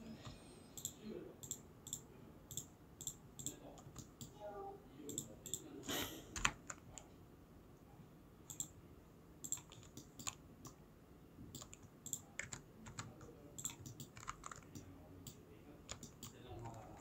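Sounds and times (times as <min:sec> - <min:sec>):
mouse clicks: 0:00.8 - 0:04.3, 0:08.5 - 0:08.8, 0:09.4 - 0:10.8
keyboard keystrokes: 0:09.4 - 0:10.8, 0:11.5 - 0:14.8, 0:15.9 - 0:17.0.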